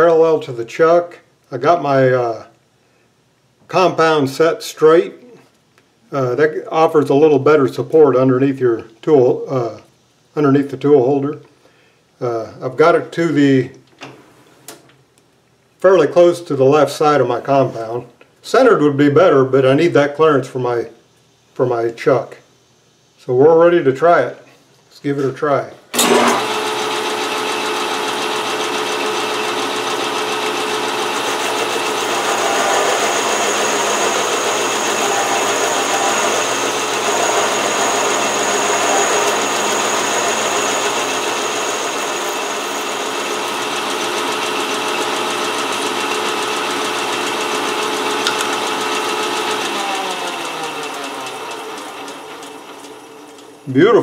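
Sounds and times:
lathe winding down: 25.9s - 53.6s
metal lathe running: 26.0s - 53.6s
thin high tone from cutting: 29.0s - 51.4s.

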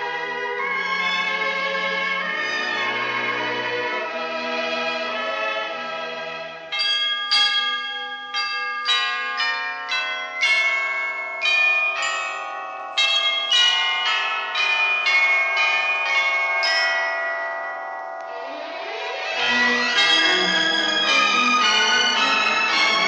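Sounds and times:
carol melody on bells: 0.0s - 23.0s
held chord: 17.9s - 23.0s.

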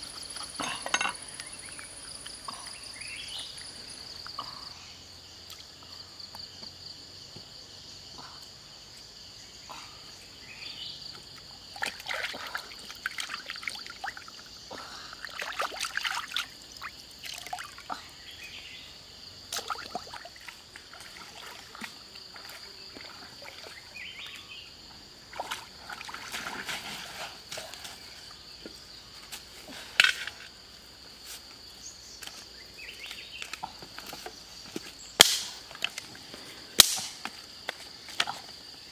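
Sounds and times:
insects buzzing: 0.0s - 38.9s
water splashing and sloshing: 11.1s - 18.0s, 19.4s - 28.4s.

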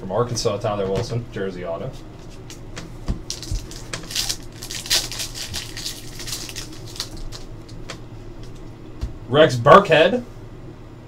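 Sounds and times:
foil wrapper crinkling and tearing: 3.2s - 8.7s.

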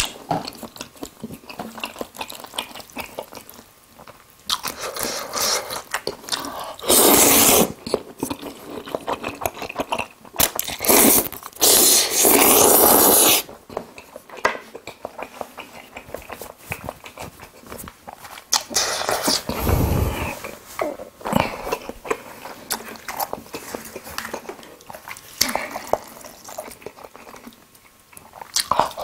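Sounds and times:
noodle slurping: 6.8s - 7.8s, 10.7s - 13.5s
wet chewing: 21.4s - 29.0s.

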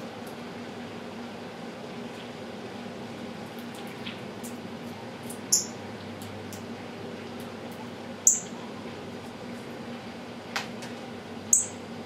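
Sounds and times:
steady low hum: 0.0s - 12.0s
bird chip notes: 8.2s - 8.6s, 11.5s - 11.8s.

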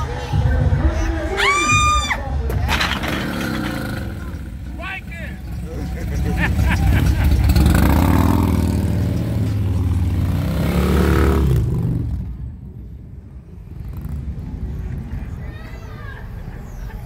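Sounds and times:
motorcycle engine revving: 2.8s - 12.6s.

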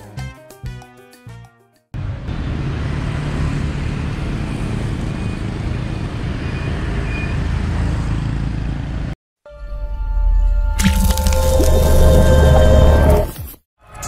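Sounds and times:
motorbikes on road: 2.0s - 9.2s
street traffic rumble: 2.0s - 9.2s.

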